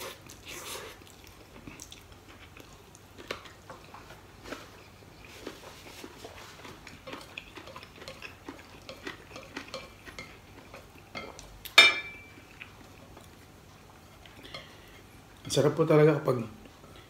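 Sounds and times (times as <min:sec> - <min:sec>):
chewing: 0:00.0 - 0:15.5
chopsticks clinking on ceramic plate: 0:11.2 - 0:12.4.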